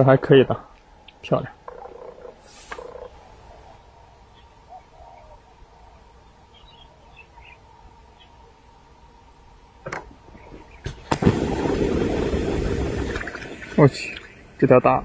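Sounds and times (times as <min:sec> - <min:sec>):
faint bird chirps: 0:01.0 - 0:08.7.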